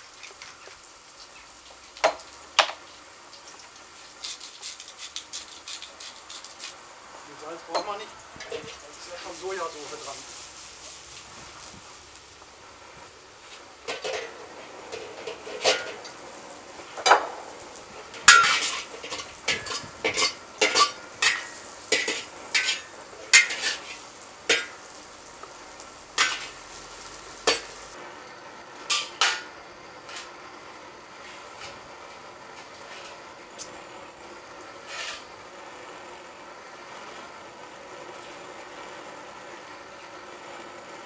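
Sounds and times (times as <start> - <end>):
food sizzling: 0.0 - 40.8
metal utensils scraping a wok: 8.4 - 11.1, 13.5 - 16.1, 18.1 - 24.9, 26.1 - 28.0, 28.9 - 30.3, 34.8 - 35.3.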